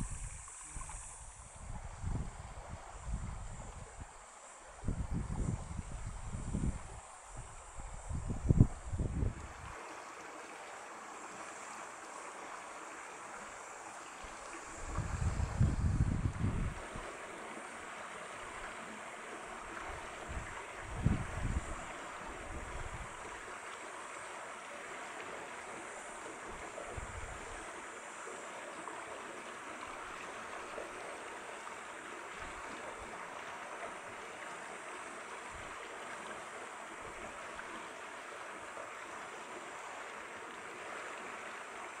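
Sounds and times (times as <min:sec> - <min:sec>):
wind rumble on microphone: 0:00.0 - 0:09.7, 0:14.8 - 0:17.1, 0:19.8 - 0:23.3, 0:26.4 - 0:27.7
stream water rushing over rocks: 0:06.6 - 0:42.0.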